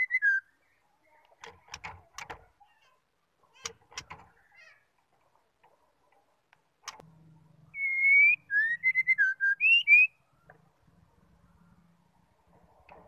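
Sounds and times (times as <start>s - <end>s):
bird whistling song: 0.0s - 0.5s, 7.7s - 10.2s
sharp click: 6.5s - 7.0s.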